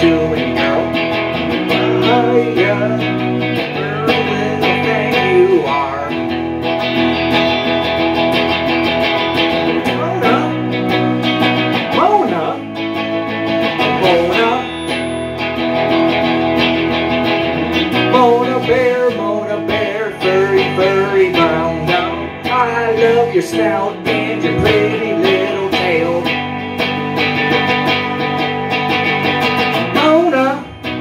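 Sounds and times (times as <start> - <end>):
man singing into microphone: 0.0 - 6.5, 9.7 - 10.7, 11.8 - 12.7, 13.8 - 14.9, 18.0 - 26.5, 29.8 - 30.9
electric guitar playing: 0.0 - 31.0.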